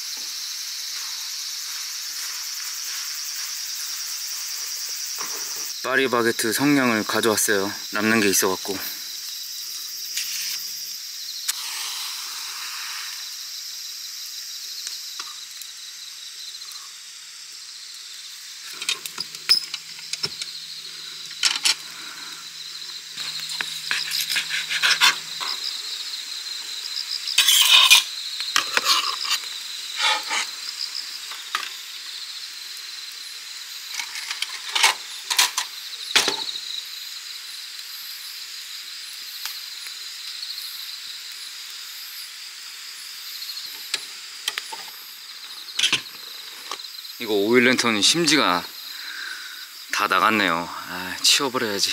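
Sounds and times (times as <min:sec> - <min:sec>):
insects chirping: 0:00.0 - 0:51.9
match flaring: 0:09.2 - 0:10.8, 0:11.4 - 0:13.5, 0:17.5 - 0:32.1.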